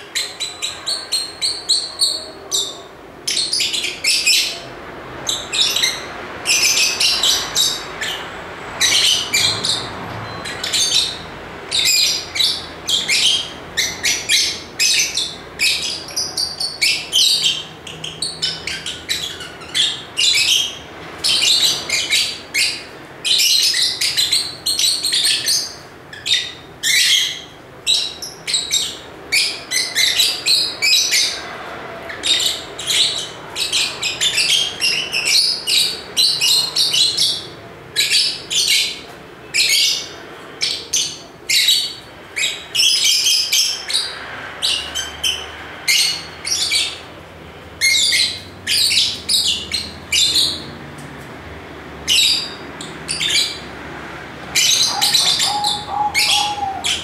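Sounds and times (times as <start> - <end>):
lovebirds chirping: 0.0 - 31.5, 54.5 - 57.0.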